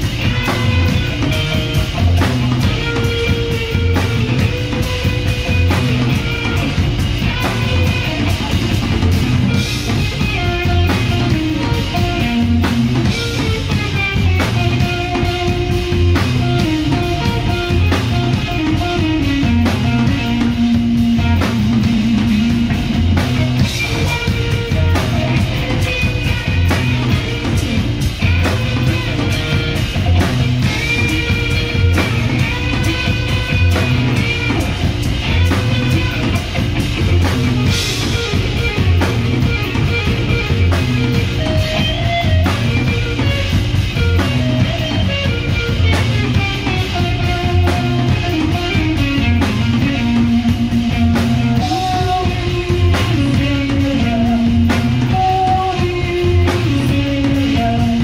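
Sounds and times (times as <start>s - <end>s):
bass guitar: 0.0s - 58.0s
drum kit beat: 0.0s - 58.0s
electric guitar: 0.0s - 58.0s.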